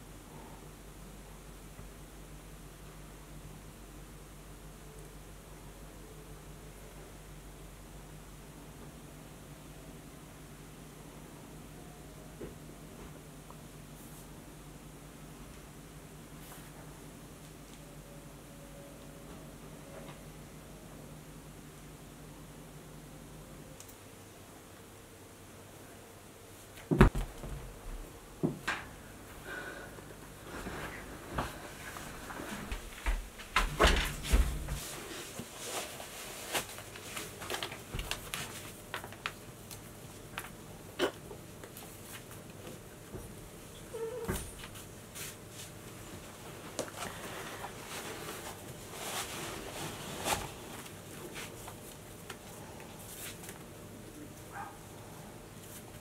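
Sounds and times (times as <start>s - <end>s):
knocks and thumps on sofa: 26.9s - 28.6s
clothing rustle: 30.4s - 39.4s, 44.3s - 53.7s.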